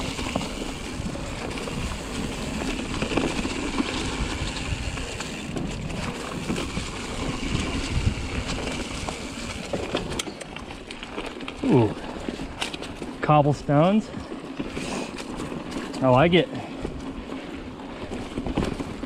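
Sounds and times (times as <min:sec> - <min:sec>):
wind buffeting microphone: 0:00.0 - 0:09.8
bike clattering over bumps: 0:00.0 - 0:19.0
bike tyre rumble on dirt: 0:00.0 - 0:19.0.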